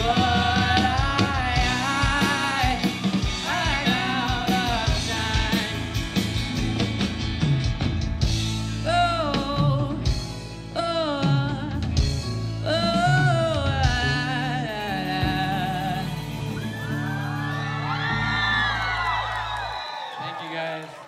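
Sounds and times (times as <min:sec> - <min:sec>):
man singing: 0:00.0 - 0:06.3
rock band playing live: 0:00.0 - 0:19.8.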